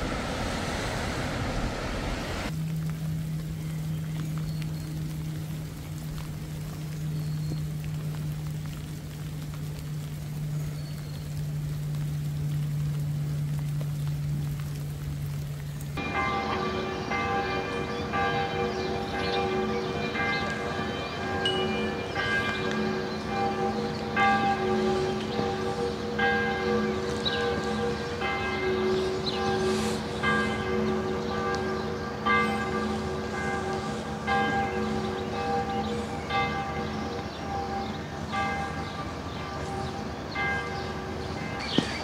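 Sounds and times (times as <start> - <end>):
church bells ringing: 16.0 - 42.0.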